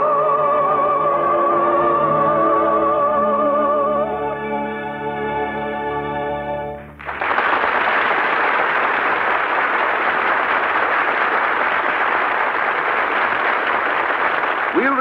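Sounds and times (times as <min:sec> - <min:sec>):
orchestral music: 0:00.1 - 0:07.0
audience applauding: 0:07.0 - 0:15.0.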